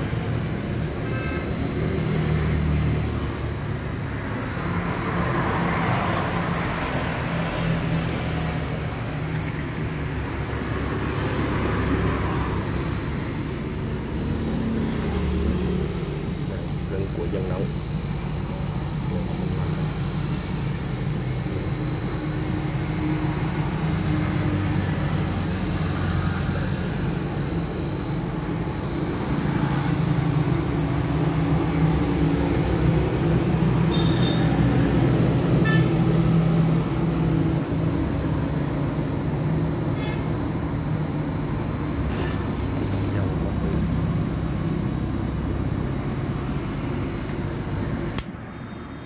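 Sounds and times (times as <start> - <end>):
compressor humming with high whine: 0.0 - 49.0.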